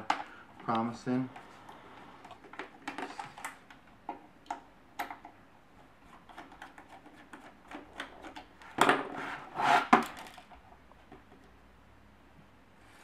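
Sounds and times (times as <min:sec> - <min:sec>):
plastic unit scraping on wooden table: 0:08.9 - 0:10.1.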